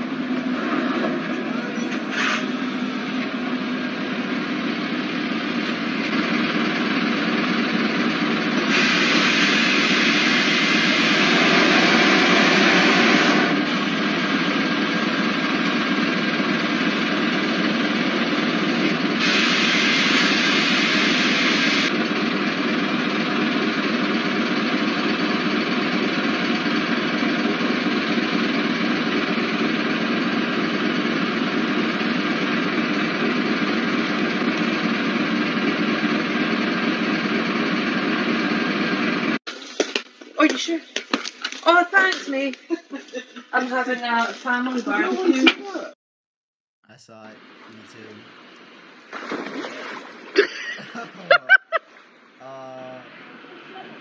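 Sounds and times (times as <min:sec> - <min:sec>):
truck engine running: 0:00.0 - 0:39.4
air brake hissing: 0:02.1 - 0:03.0, 0:08.6 - 0:14.0, 0:19.2 - 0:21.4.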